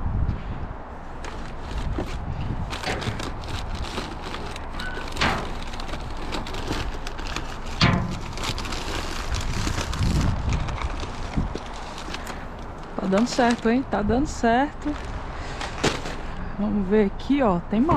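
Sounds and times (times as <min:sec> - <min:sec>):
plastic bags rustling: 0:01.0 - 0:16.5.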